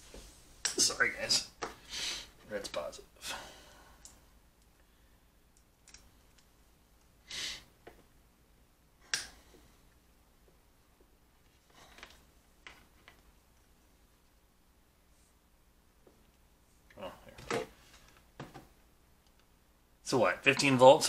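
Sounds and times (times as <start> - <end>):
soft rustle: 0.0 - 0.6, 15.0 - 15.5.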